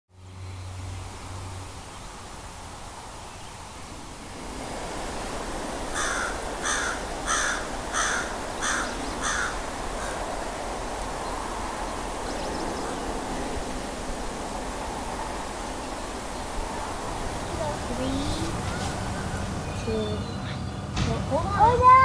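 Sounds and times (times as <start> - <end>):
steady outdoor hiss: 0.1 - 22.0
crow cawing: 5.9 - 10.3.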